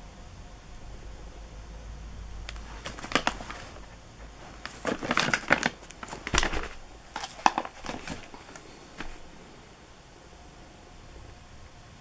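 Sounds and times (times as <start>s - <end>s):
cardboard crinkling rustles: 2.5s - 9.4s.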